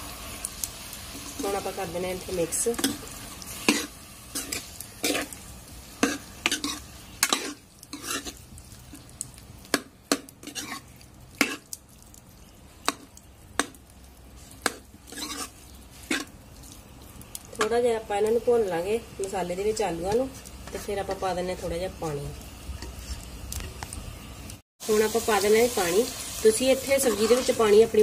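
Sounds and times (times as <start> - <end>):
faint frying sizzle: 0.0 - 28.0
ladle scraping metal pan: 6.0 - 8.4, 10.4 - 11.6, 14.6 - 16.3.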